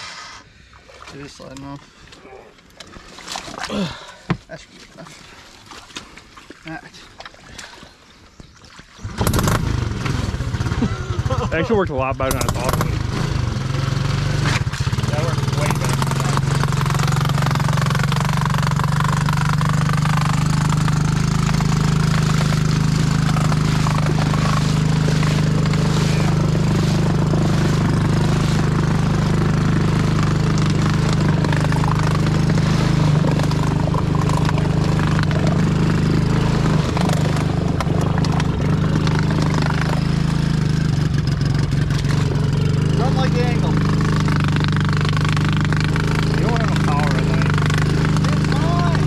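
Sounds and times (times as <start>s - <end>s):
small atv engine running: 9.0s - 49.0s.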